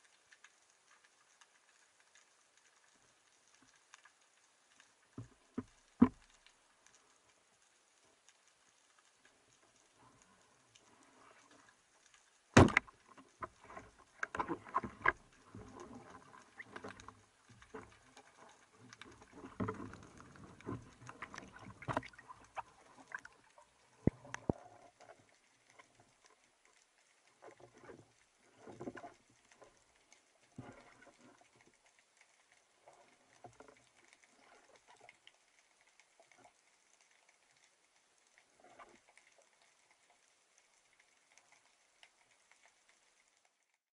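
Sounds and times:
speargun firing crack: 12.6s - 12.9s.

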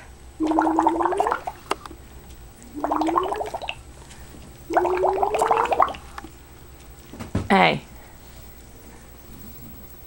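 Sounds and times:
bubbles blown into milk: 0.4s - 1.7s, 2.6s - 3.8s, 4.7s - 6.2s.

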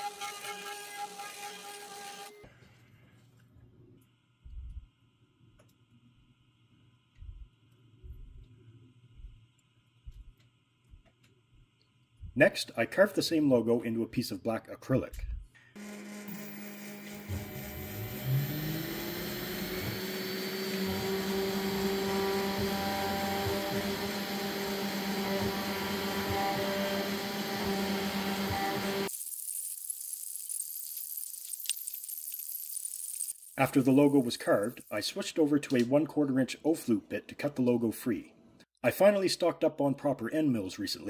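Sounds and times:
end mill carving acrylic: 0.0s - 2.4s, 15.8s - 29.1s
cnc router spindle running: 15.8s - 29.1s
stepper motors whining: 15.8s - 29.1s.

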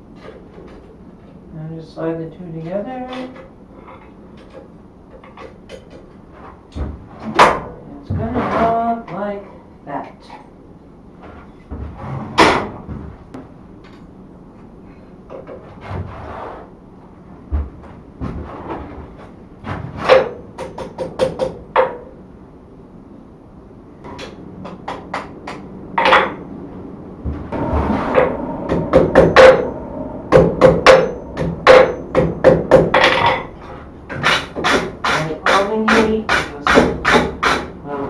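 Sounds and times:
hammer striking anvil: 27.6s - 33.5s.

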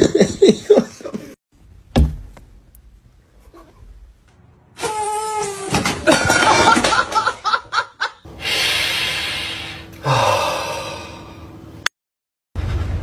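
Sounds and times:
person laughing: 0.0s - 1.4s, 6.0s - 8.2s
long breathy hiss: 8.3s - 11.4s.

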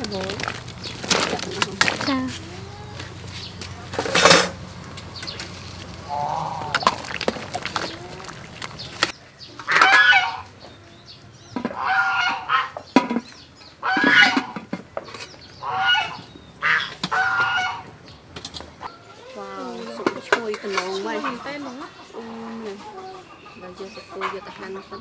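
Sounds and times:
fowl honking: 9.6s - 10.6s, 11.6s - 12.8s, 13.8s - 14.6s, 15.6s - 18.0s.

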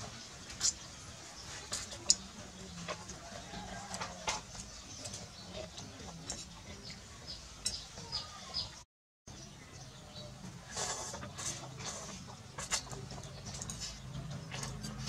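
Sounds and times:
cutlery clinking on ceramic bowls: 1.7s - 7.0s.

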